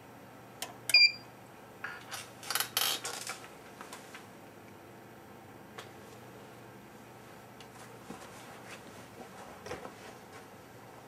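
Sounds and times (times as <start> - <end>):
high electronic beep: 0.9 - 1.2.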